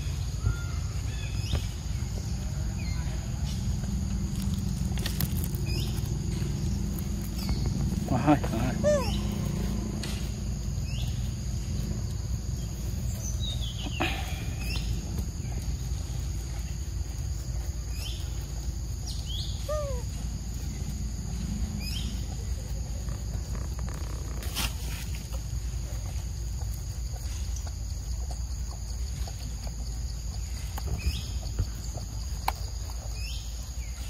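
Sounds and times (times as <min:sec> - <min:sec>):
high insect drone: 0:00.0 - 0:34.0
low rumble: 0:00.9 - 0:24.0
short chirping calls: 0:05.5 - 0:09.6, 0:19.0 - 0:20.2.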